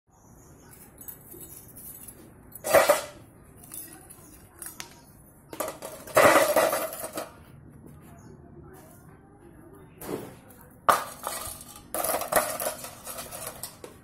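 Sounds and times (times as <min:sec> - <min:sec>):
metal sprockets clattering in tin: 0:00.8 - 0:04.8, 0:05.6 - 0:07.4, 0:10.9 - 0:14.0.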